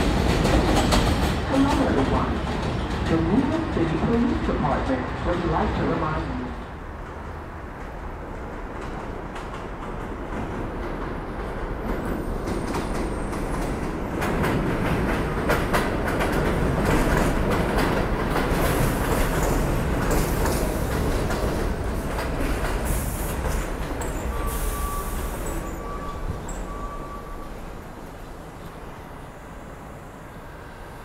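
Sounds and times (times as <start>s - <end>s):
wheels clicking over rail joints: 0.0s - 3.1s
subway train running: 0.0s - 31.0s.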